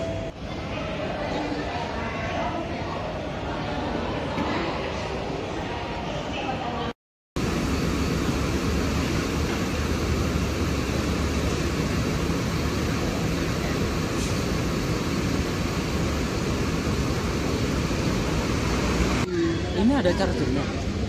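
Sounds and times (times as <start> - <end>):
diesel coaches idling: 7.4 - 19.2.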